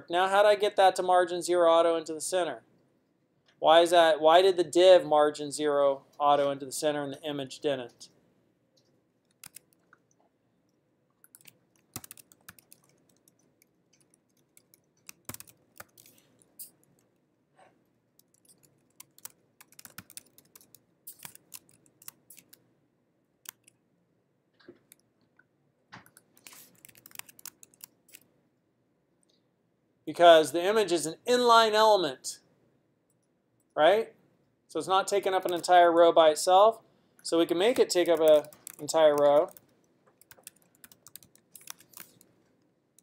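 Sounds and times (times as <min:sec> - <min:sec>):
typing on computer keyboard: 0:09.3 - 0:10.2, 0:11.2 - 0:17.1, 0:18.2 - 0:22.6, 0:23.5 - 0:23.8, 0:26.0 - 0:28.3, 0:37.6 - 0:42.3.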